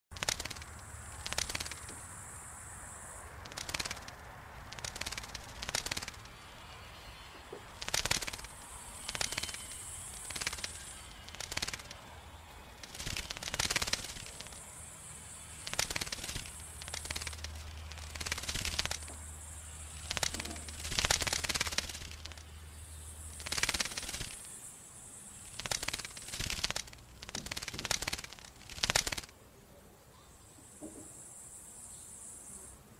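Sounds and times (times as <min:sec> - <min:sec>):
bat echolocation clicks: 0:00.2 - 0:02.0, 0:03.3 - 0:06.4, 0:07.7 - 0:12.0, 0:12.8 - 0:22.5, 0:23.2 - 0:24.6, 0:25.3 - 0:29.3
high hiss: 0:00.2 - 0:29.4.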